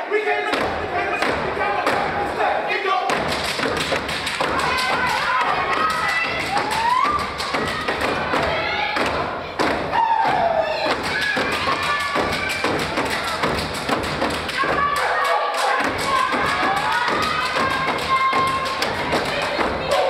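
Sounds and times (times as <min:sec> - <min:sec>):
hand claps: 0:03.1 - 0:09.9, 0:10.9 - 0:20.0.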